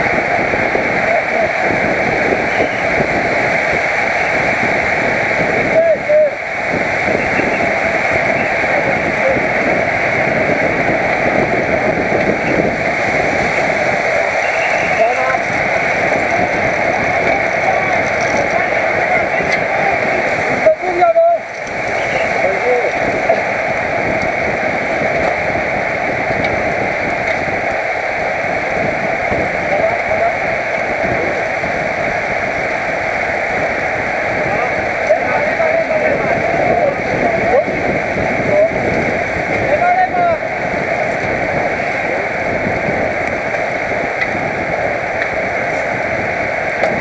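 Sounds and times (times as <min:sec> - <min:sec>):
wind rushing over microphone: 0:00.0 - 0:47.0.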